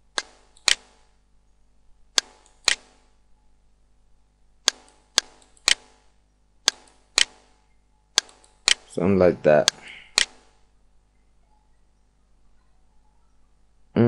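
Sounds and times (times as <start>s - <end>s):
computer mouse clicking: 0.1s - 1.0s, 2.2s - 3.0s, 4.7s - 6.0s, 8.2s - 8.9s.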